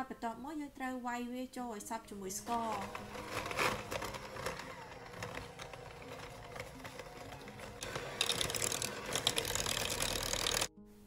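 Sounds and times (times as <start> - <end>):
beaters rattling and scraping in bowl: 2.5 - 10.7
electric hand mixer whining: 2.5 - 10.7.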